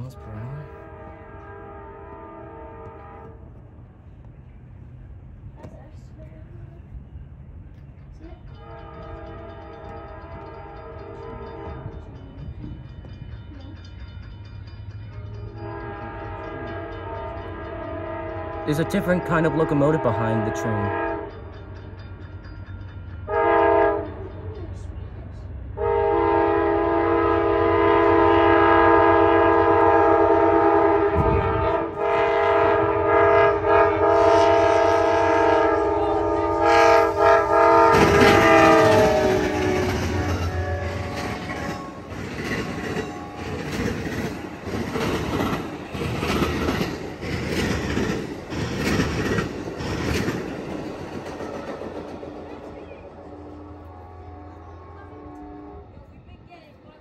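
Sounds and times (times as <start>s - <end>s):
locomotive air horn: 0.0s - 3.5s, 8.6s - 11.9s, 15.5s - 21.3s, 23.3s - 24.1s, 25.8s - 41.8s, 53.2s - 56.0s
passing train cars rumble: 0.0s - 57.0s
wheels clacking over rail joints: 36.6s - 53.1s.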